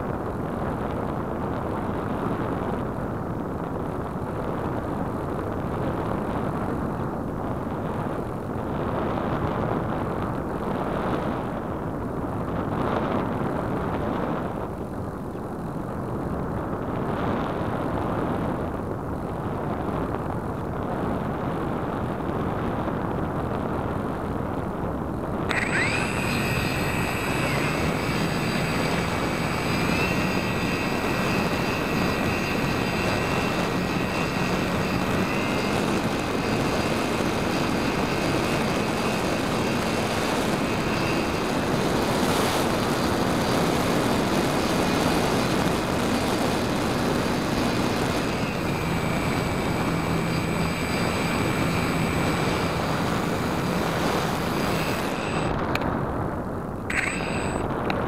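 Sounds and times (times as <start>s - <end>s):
electric motor whine: 25.5s - 56.0s, 56.8s - 58.0s
rush of airflow: 25.5s - 58.0s.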